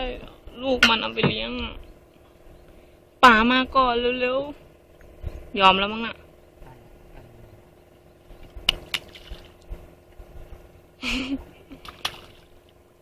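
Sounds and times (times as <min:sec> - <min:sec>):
knocks against wooden boat: 0:00.8 - 0:01.7
fish splashing at water surface: 0:08.4 - 0:09.7, 0:11.7 - 0:12.7.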